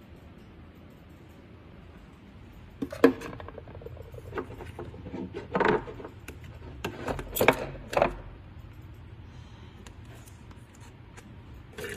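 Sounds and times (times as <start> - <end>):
plastic cups clicking and knocking: 2.8 - 8.2.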